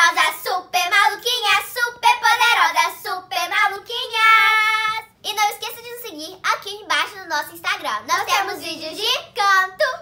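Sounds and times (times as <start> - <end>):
girls singing: 0.0 - 5.2.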